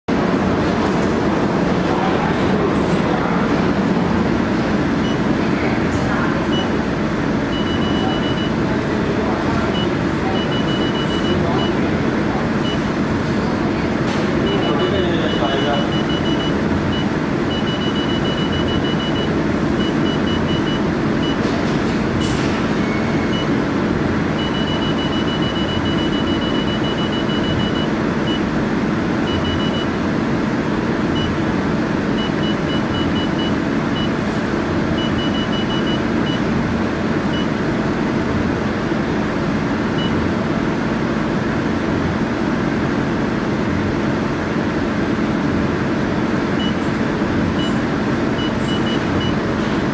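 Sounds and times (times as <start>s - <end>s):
laser machine whirring hum: 0.1s - 49.9s
short high beeps: 7.5s - 8.6s, 9.7s - 11.8s, 14.4s - 21.4s.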